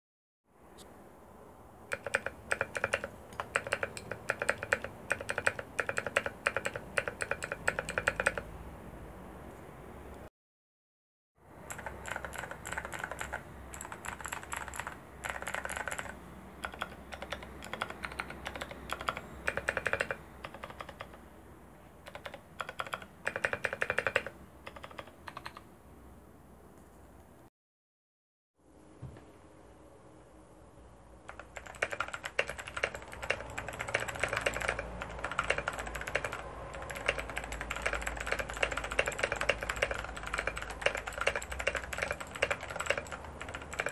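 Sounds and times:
clicky mechanical keyboard typing: 0:01.9 - 0:08.5, 0:11.6 - 0:21.2, 0:22.0 - 0:25.7, 0:31.2 - 0:43.9.

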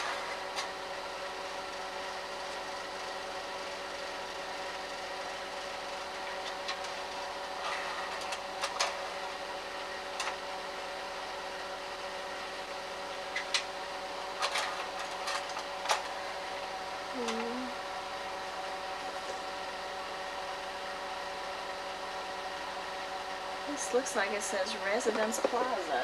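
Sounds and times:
slide projector fan and motor hum: 0:00.0 - 0:26.0.

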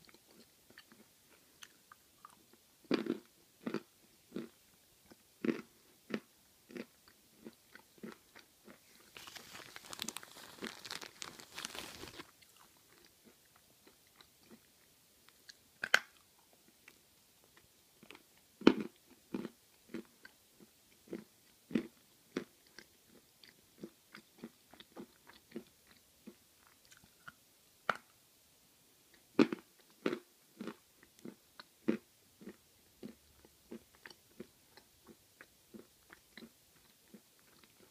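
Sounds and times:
crunchy chewing of chalk: 0:00.0 - 0:16.2.

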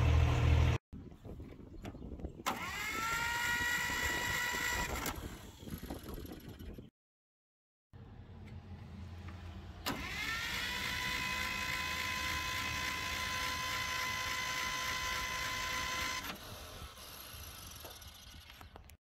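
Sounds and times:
starter motor whine: 0:02.4 - 0:06.7, 0:09.8 - 0:18.6
starter motor click: 0:09.8 - 0:11.7.

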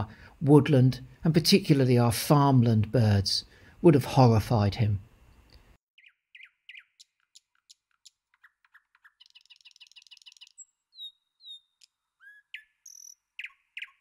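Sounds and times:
songbirds chirping and trilling: 0:06.0 - 0:14.0.

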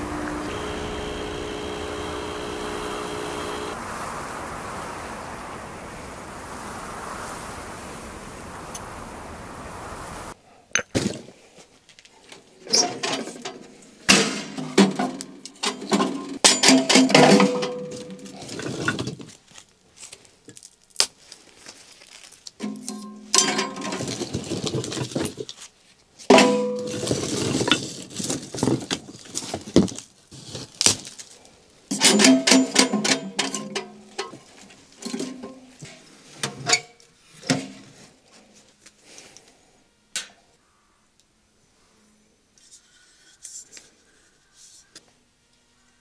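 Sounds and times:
espresso machine hissing: 0:00.0 - 0:10.4.

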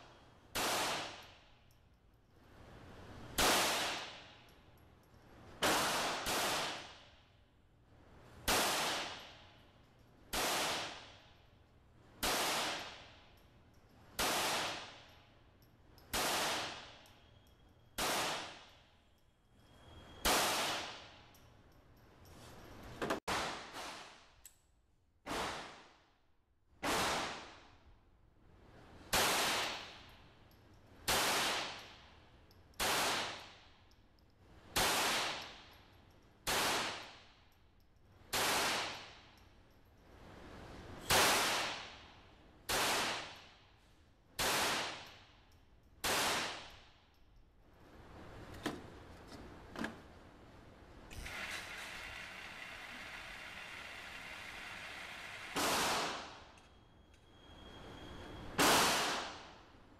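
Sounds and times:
pistol shots echoing indoors: 0:00.1 - 0:01.6, 0:05.6 - 0:07.3, 0:08.4 - 0:09.7, 0:12.2 - 0:13.4, 0:14.1 - 0:15.2, 0:16.0 - 0:17.3, 0:17.9 - 0:19.0, 0:44.4 - 0:47.2, 0:55.6 - 0:56.6, 0:58.6 - 0:59.6.

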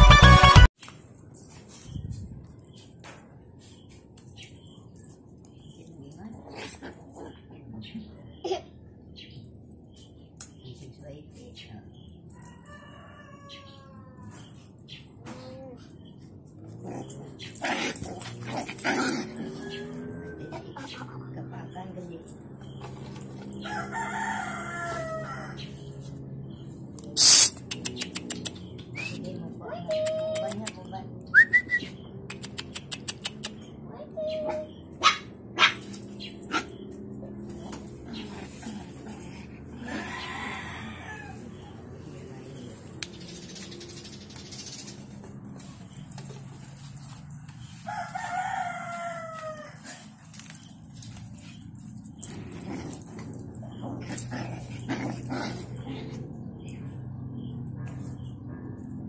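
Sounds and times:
rooster crowing: 0:12.4 - 0:14.3, 0:19.4 - 0:20.9, 0:23.6 - 0:25.8, 0:39.8 - 0:41.7, 0:47.8 - 0:50.1
sharp clicks: 0:27.0 - 0:28.9, 0:32.3 - 0:33.6.

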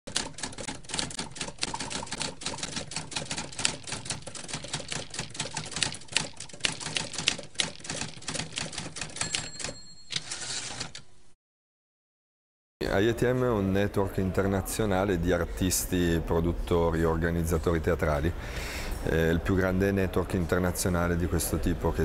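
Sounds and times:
typewriter keys clacking: 0:00.1 - 0:11.0
typewriter bell ring: 0:08.4 - 0:11.0.

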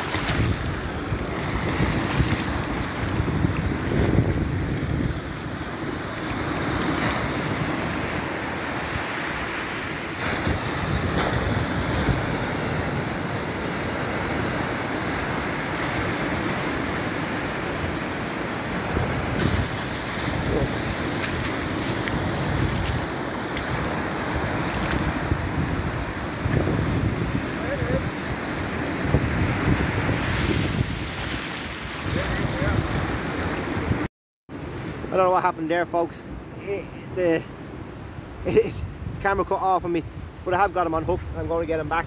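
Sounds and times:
wind buffeting microphone: 0:00.0 - 0:09.1, 0:18.7 - 0:34.1
surf washing onto beach: 0:00.0 - 0:37.5.

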